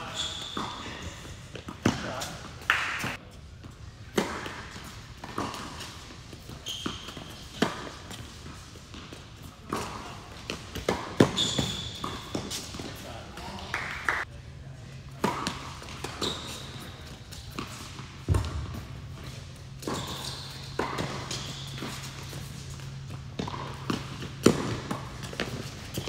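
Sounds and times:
tennis ball bouncing: 4.1s - 13.0s, 15.2s - 26.0s
racket striking tennis ball: 19.7s - 26.0s.

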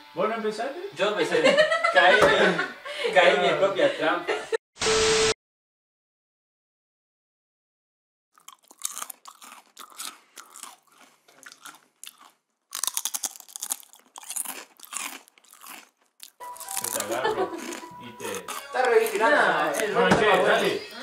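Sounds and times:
crunchy snacks being chewed: 8.4s - 20.0s.

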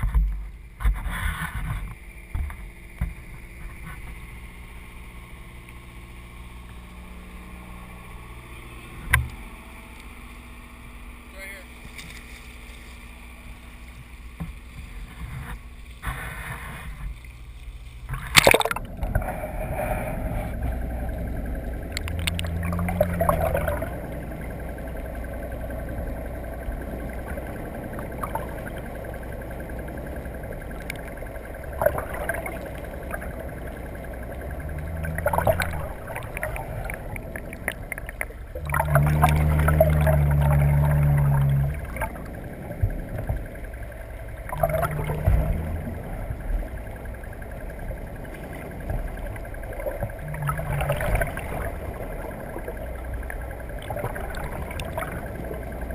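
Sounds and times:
boat engine drone: 0.0s - 55.9s
muffled underwater rumble: 0.0s - 55.9s
microphone splashing into water: 18.1s - 19.4s, 34.6s - 42.2s.

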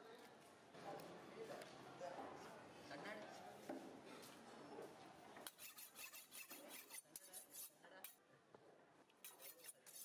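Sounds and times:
knife scraping and clicking on fish: 5.4s - 8.2s, 9.2s - 10.0s.

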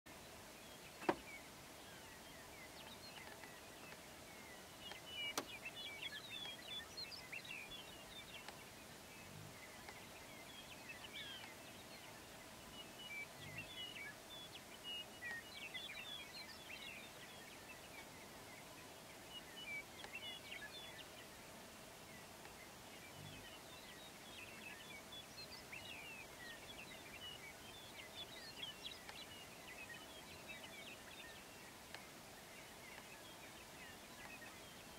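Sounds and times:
distant songbirds chirping: 0.1s - 34.9s.

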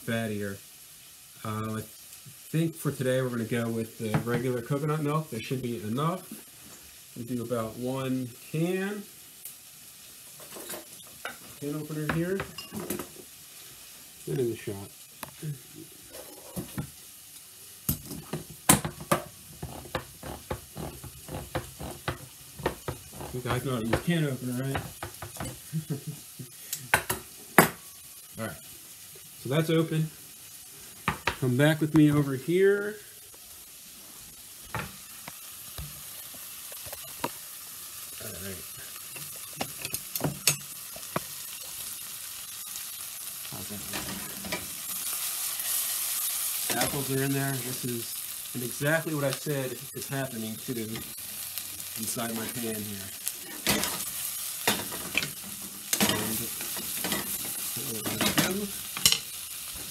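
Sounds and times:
food sizzling in a saucepan: 0.0s - 59.9s
can opener knocking on can: 18.3s - 24.1s.

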